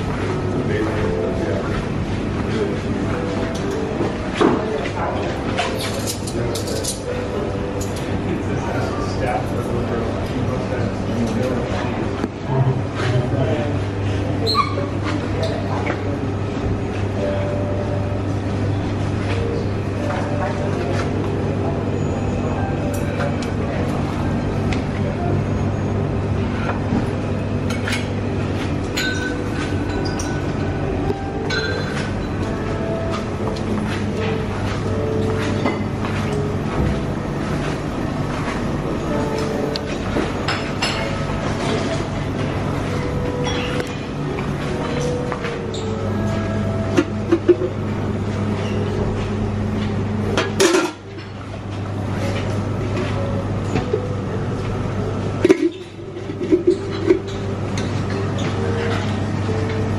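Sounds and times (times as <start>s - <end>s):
steady low hum: 0.0s - 59.9s
crockery and glassware clinking: 5.6s - 8.2s, 28.9s - 30.7s, 31.4s - 32.5s, 39.3s - 41.9s, 43.3s - 44.1s.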